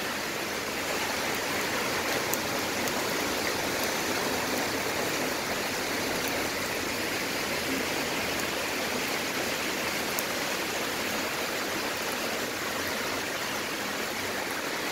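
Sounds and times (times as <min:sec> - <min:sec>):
heavy rain and splashing water: 0:00.0 - 0:14.9.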